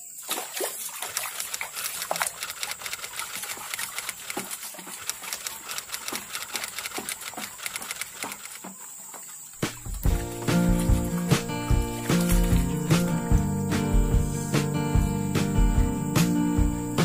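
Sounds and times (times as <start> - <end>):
water sloshing and plopping: 0.0 - 13.9.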